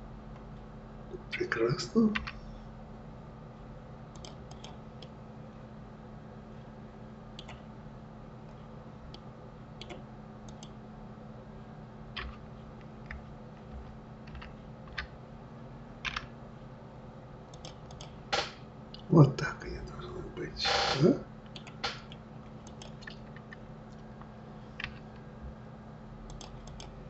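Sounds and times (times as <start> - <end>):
steady low hum: 0.0 - 27.0
mouse and keyboard clicks: 4.2 - 5.1, 9.8 - 10.7, 12.2 - 12.4, 17.5 - 18.1, 21.5 - 23.6, 26.3 - 26.9.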